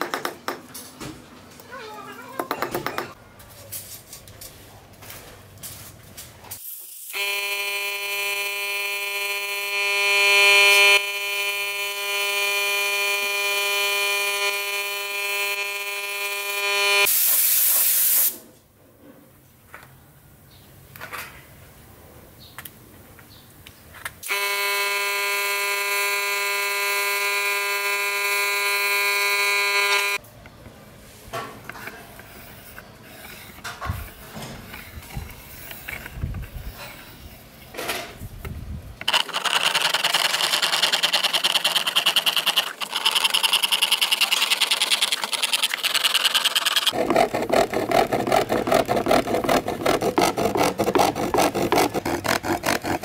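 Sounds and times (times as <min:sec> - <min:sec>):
fret saw rasping: 0:39.1 - 0:53.0
quiet scratching: 0:40.9 - 0:53.0.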